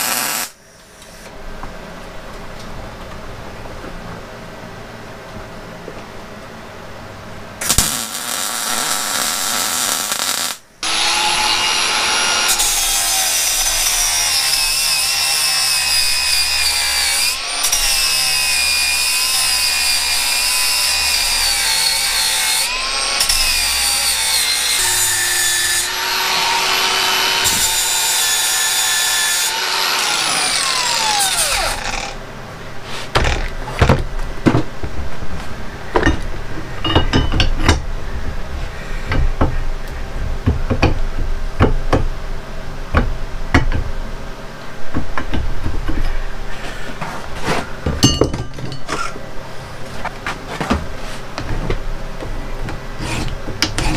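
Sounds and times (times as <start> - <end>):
angle grinder grinding metal: 0.0 - 0.5, 7.6 - 32.2
welding crackle: 0.0 - 0.6, 7.6 - 10.6
metal knocks: 35.9 - 37.9, 47.9 - 49.1.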